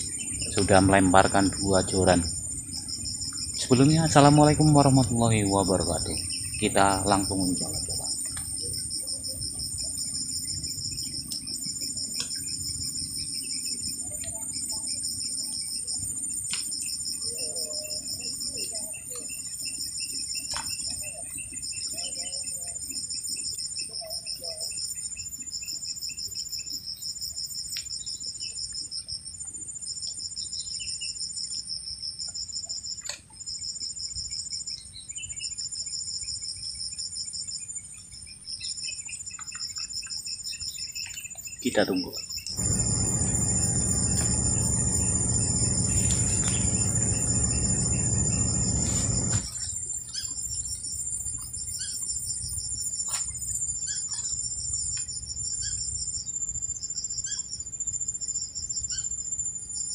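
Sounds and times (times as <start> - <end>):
insects chirping in trills: 0.0 - 59.9
thin high-pitched drone: 42.6 - 49.5.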